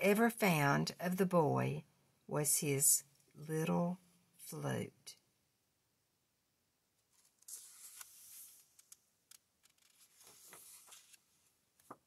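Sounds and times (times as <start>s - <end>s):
paper pages turning: 7.1s - 12.0s.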